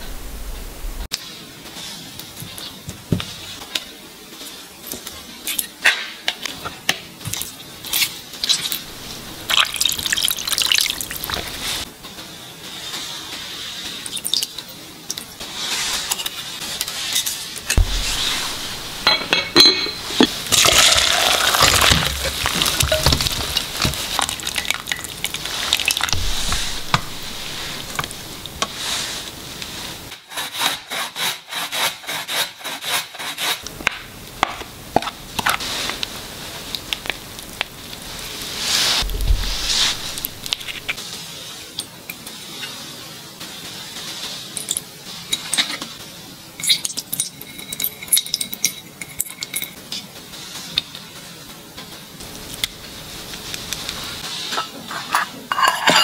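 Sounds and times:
utensils clinking against glass pot: 17.7 - 28.7, 46.6 - 50.0, 54.5 - 56.0
glass lid on glass pot: 54.5 - 56.0.

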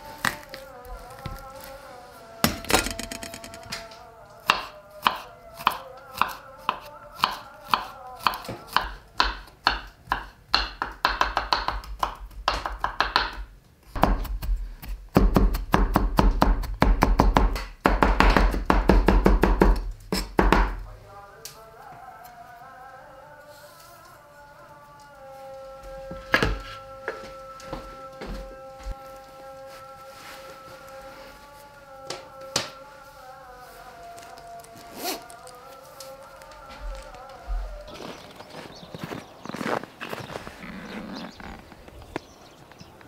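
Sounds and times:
faint background music: 0.0 - 10.2, 20.6 - 41.6.

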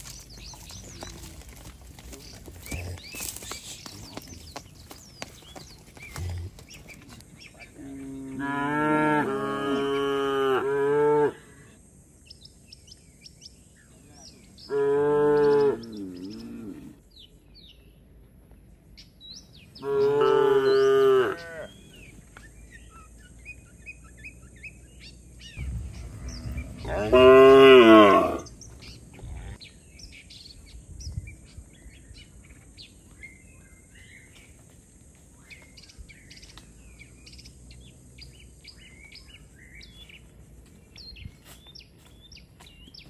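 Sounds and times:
birds chirping faintly: 0.0 - 43.0
cattle mooing: 25.9 - 28.5.

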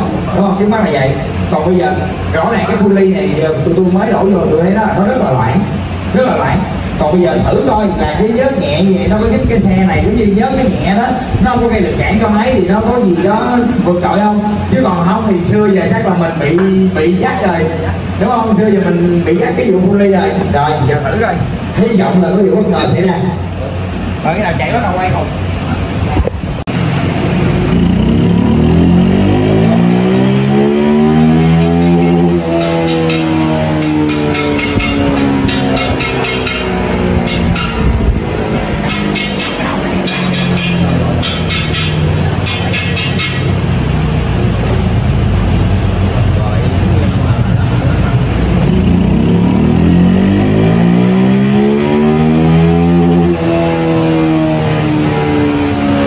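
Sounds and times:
motorcycle engine revving under load: 25.3 - 56.0.

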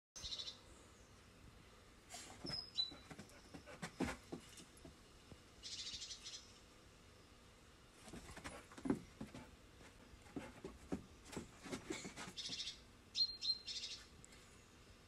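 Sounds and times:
birds chirping: 2.4 - 4.2, 5.6 - 6.6, 11.3 - 14.1.

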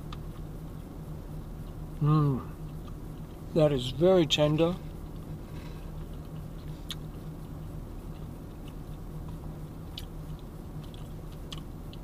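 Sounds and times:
car engine and air conditioner hum: 0.0 - 12.0
person chewing: 2.5 - 3.4, 5.0 - 12.0.

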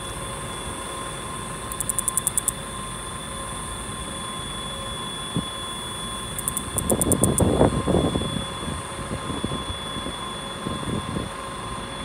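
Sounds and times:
cicada high buzz: 1.6 - 2.7, 4.0 - 8.6
cicada fast pulsing: 1.7 - 2.6, 6.0 - 7.7.

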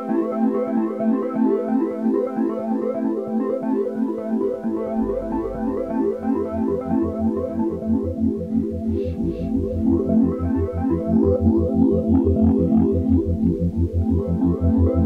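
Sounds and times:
electronic keyboard notes: 0.0 - 15.0
low bass: 4.5 - 15.0.

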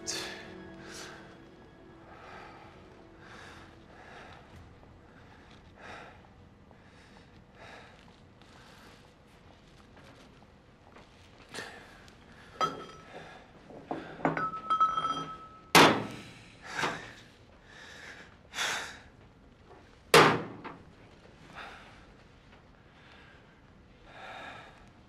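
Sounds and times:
heavy strained breathing: 0.0 - 9.1
metallic ringing: 12.6 - 13.1, 14.3 - 15.8.

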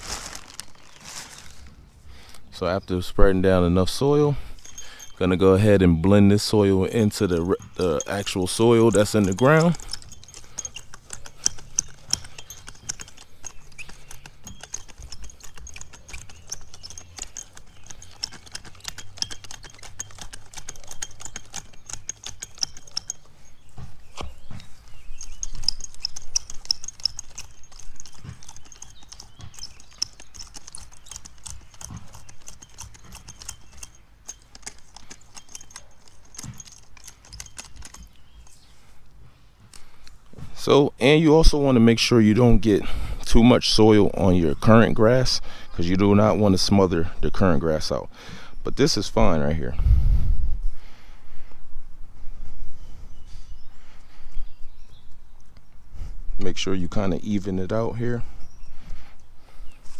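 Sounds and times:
cultivator tines crunching soil: 0.0 - 39.0.

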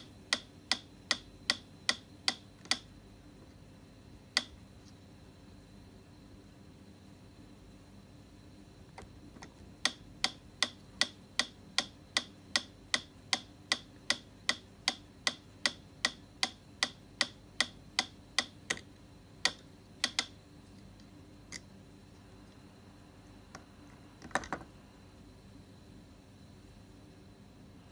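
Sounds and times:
irregular metronome clicks: 0.0 - 2.9, 4.3 - 4.6, 9.8 - 20.4
metronome ticking: 0.0 - 2.9, 9.8 - 18.8, 19.4 - 20.3.

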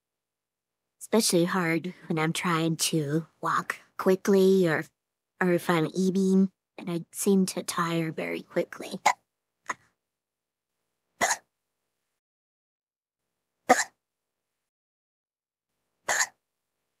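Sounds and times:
woman hiccuping: 11.2 - 11.5, 13.7 - 14.0, 16.1 - 16.4.

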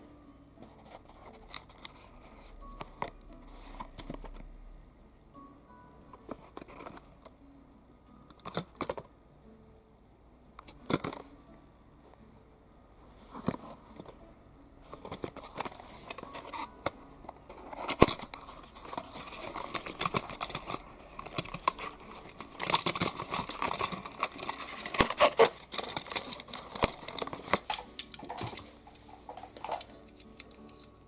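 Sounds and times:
packaging crinkling and rustling: 14.9 - 30.8.

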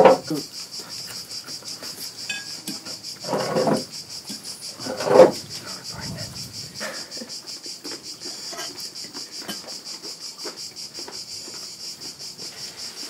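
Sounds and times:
insects chirring: 0.0 - 13.0
cutlery and dishes knocking: 2.3 - 2.9.

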